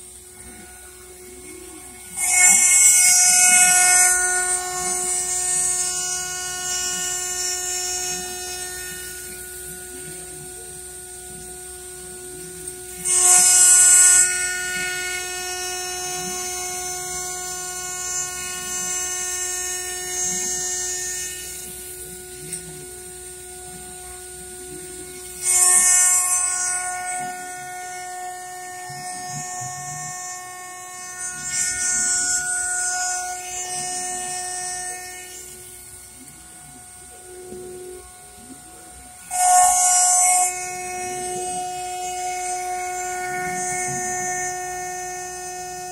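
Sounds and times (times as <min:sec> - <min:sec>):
harsh metal screeching: 0:00.0 - 0:10.1, 0:25.3 - 0:45.9
milling machine cutting metal: 0:00.0 - 0:45.9
steady machine whine: 0:00.0 - 0:45.9.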